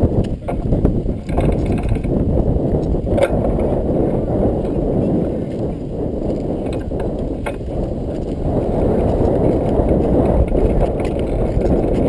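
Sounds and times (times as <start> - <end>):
wind buffeting microphone: 0.0 - 12.0
faint bike clicks: 0.2 - 3.8, 5.5 - 12.0.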